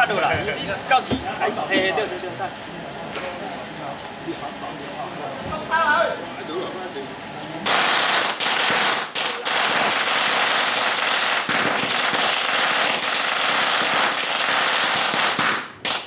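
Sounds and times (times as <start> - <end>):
firecrackers crackling: 7.6 - 16.0.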